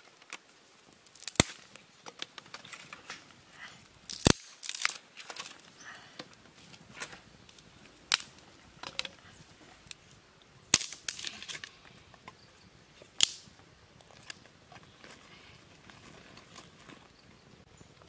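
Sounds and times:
loud wood cracks: 0:00.0 - 0:03.4, 0:04.0 - 0:09.2, 0:10.7 - 0:11.7, 0:13.2 - 0:13.6
campfire crackling: 0:00.0 - 0:18.0.

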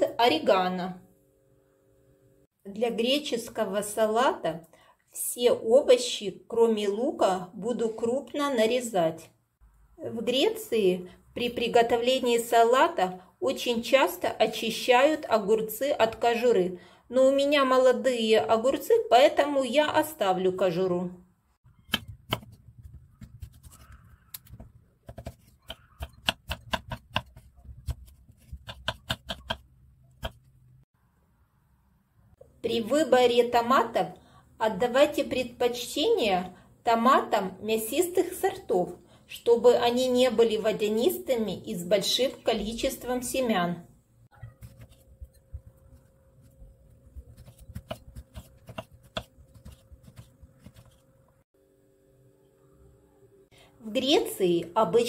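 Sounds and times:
knife chopping on wooden board: 0:21.9 - 0:30.5, 0:44.5 - 0:45.8, 0:47.1 - 0:51.0.

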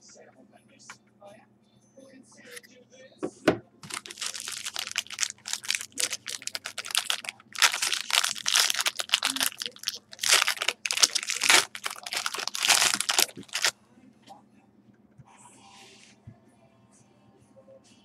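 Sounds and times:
plastic wrapping crinkling: 0:03.8 - 0:13.7.

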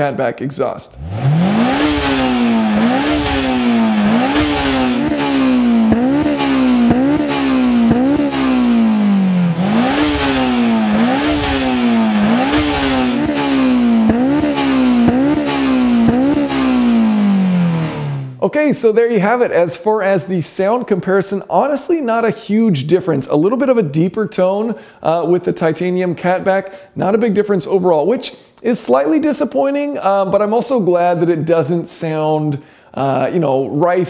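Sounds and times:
car engine revving: 0:01.0 - 0:18.4.

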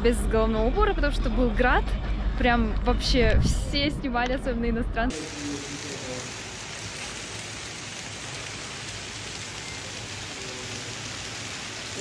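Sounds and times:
heavy hail and rain pelting: 0:05.1 - 0:12.0.

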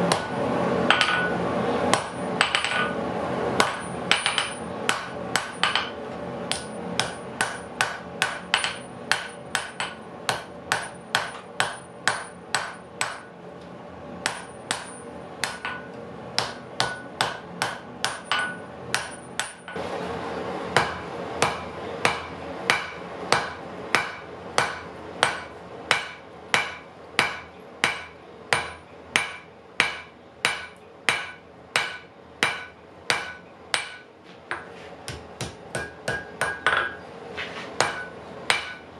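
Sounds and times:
hammer striking metal on anvil: 0:00.0 - 0:03.0, 0:03.6 - 0:13.3, 0:14.2 - 0:19.8, 0:20.8 - 0:37.0, 0:37.8 - 0:38.9.

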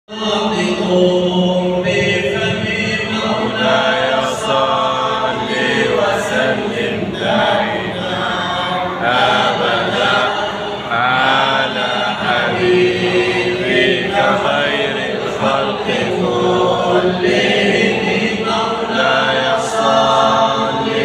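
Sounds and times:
man chanting devotional song: 0:00.1 - 0:16.1.

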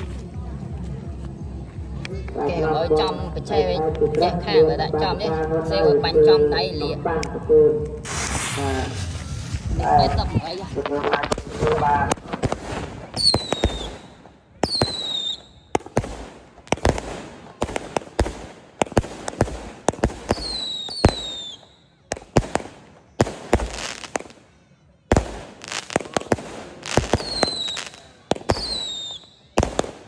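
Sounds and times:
firework hissing: 0:08.0 - 0:10.6, 0:11.3 - 0:24.4, 0:25.1 - 0:30.0
firework bangs: 0:08.0 - 0:24.4, 0:25.1 - 0:30.0.

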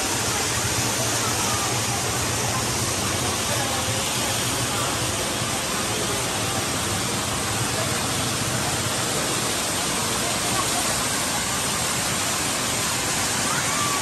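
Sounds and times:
waterfall rushing over rocks: 0:00.0 - 0:14.0.

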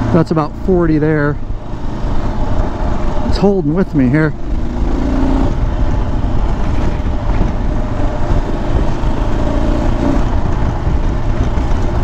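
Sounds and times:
motorcycle engine running: 0:01.4 - 0:12.0
wind noise on microphone: 0:04.4 - 0:12.0.

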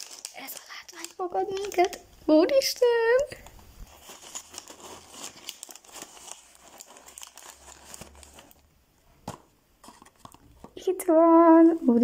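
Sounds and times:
tissue paper crinkling: 0:00.0 - 0:02.0, 0:03.8 - 0:08.6.

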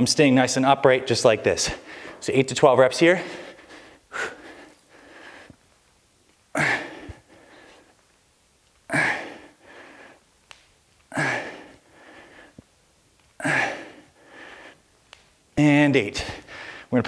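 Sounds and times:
man breathing out hard: 0:03.2 - 0:05.6, 0:06.5 - 0:07.9, 0:08.9 - 0:10.2, 0:11.1 - 0:12.6, 0:13.4 - 0:14.9, 0:16.2 - 0:16.9.

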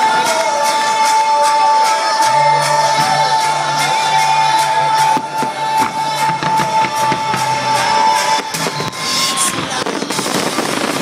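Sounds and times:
loud show music with drum beat: 0:00.0 - 0:11.0
firework bangs: 0:05.4 - 0:11.0.

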